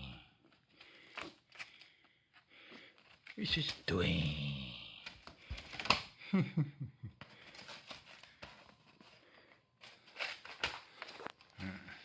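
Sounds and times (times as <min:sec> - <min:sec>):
paper rustling and tearing: 0:09.8 - 0:11.5.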